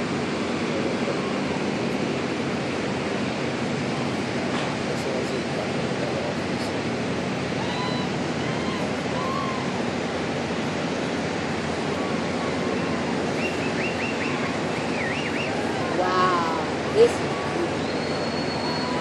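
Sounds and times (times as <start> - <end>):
churning water: 0.0 - 19.0
faint high warbling calls: 12.8 - 15.7.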